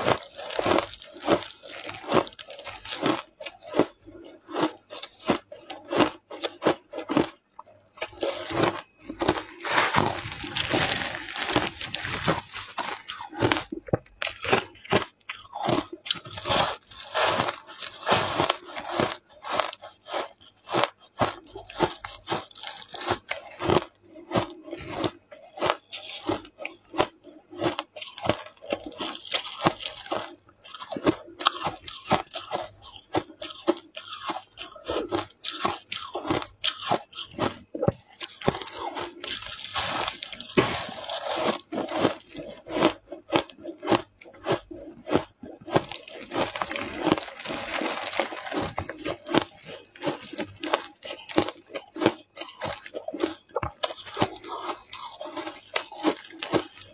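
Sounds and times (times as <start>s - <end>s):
ice crunching while chewed: 0.0s - 56.9s.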